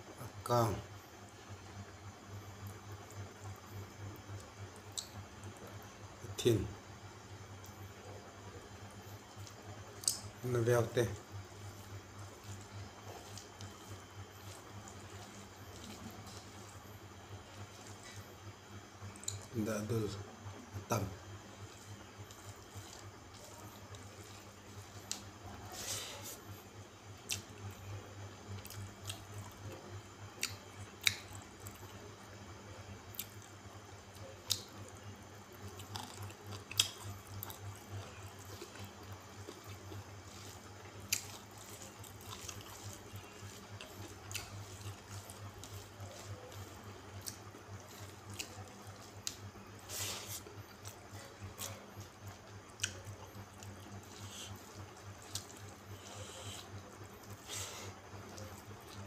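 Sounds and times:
steady low hum: 0.0 - 59.0
wet chewing and lip-smacking: 9.4 - 10.3, 11.8 - 18.3, 19.1 - 19.5, 27.2 - 27.8, 28.5 - 29.8, 30.4 - 32.0, 33.1 - 59.0.

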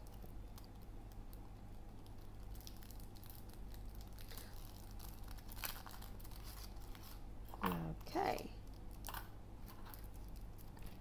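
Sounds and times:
steady low hum: 0.0 - 11.0
paper sleeve crinkling: 2.6 - 7.2.

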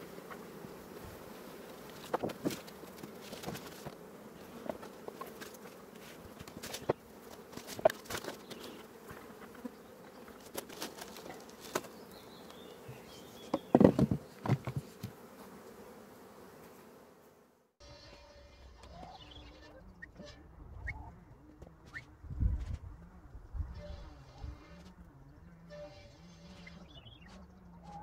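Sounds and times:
honeybees buzzing: 0.0 - 28.0
knocks and rustles: 1.8 - 4.0, 4.6 - 9.6, 12.8 - 15.2
wooden lid thumping: 13.5 - 14.9.

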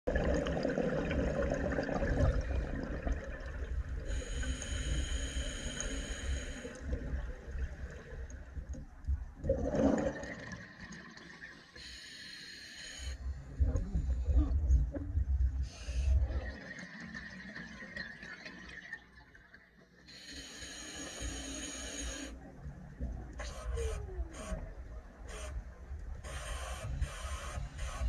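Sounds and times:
diver breathing through regulator: 4.1 - 6.8
air bubbling underwater: 9.4 - 10.6.

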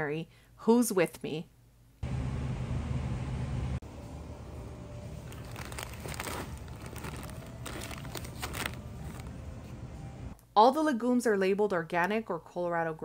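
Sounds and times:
steady low hum: 1.8 - 5.7
plastic bag crinkling: 5.2 - 9.5.

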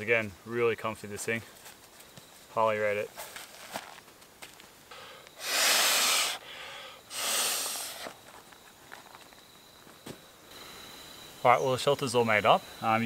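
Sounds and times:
high insect tone: 0.0 - 13.0
breath blown into pillow valve: 5.4 - 8.1.

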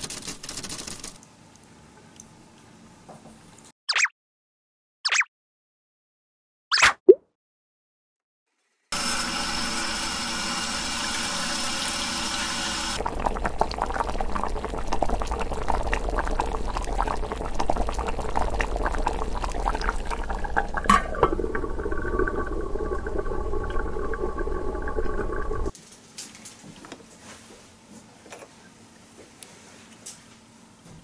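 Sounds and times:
faucet running into plastic cup: 9.0 - 25.7
water bubbling at the boil: 12.8 - 25.7.

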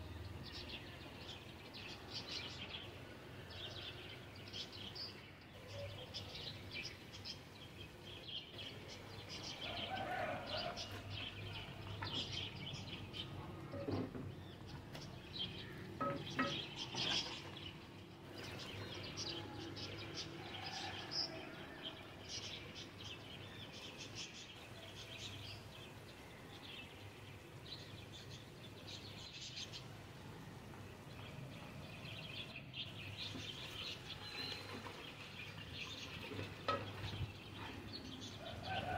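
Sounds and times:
small birds chirping: 0.0 - 38.9.

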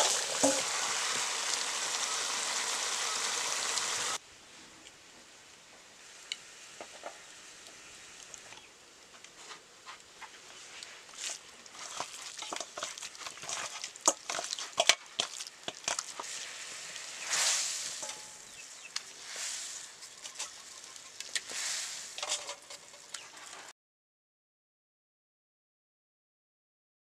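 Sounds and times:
chicken sizzling in hot oil: 0.0 - 4.2, 10.8 - 23.7
chicken rubbed in steel bowl: 11.1 - 23.7.

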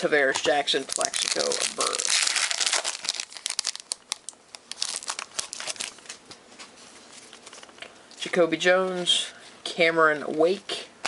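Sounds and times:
foil wrapper tearing and crinkling: 0.8 - 6.1.

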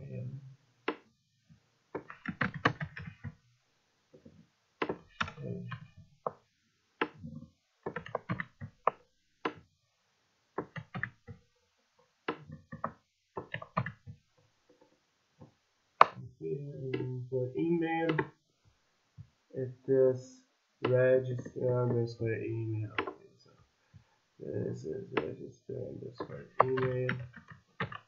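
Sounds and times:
keyboard key clicks: 26.2 - 28.0.

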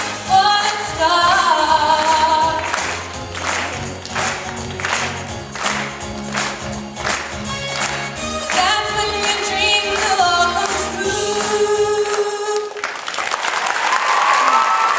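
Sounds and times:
musical accompaniment: 0.0 - 12.7
girl singing into microphone: 0.3 - 2.6, 8.6 - 12.8
applause: 2.0 - 10.8, 11.4 - 14.9.

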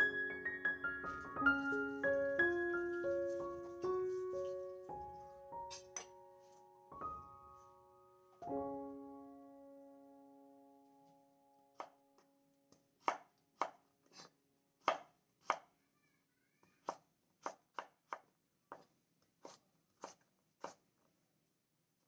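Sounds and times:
piano chord: 0.0 - 11.7
knife chopping on wooden board: 13.0 - 15.7, 16.9 - 20.8.

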